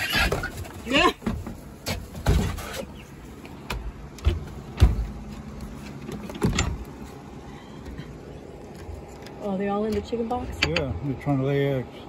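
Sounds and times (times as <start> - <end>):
dull knocks and bumps: 3.6 - 5.4.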